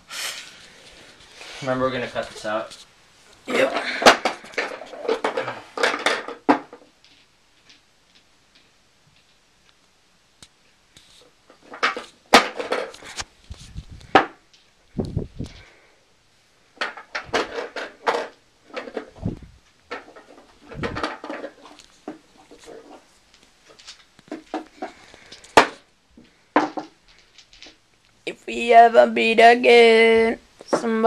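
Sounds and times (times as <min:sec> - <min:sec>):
low thumps and bumps: 0:19.2 - 0:19.6, 0:20.7 - 0:21.0.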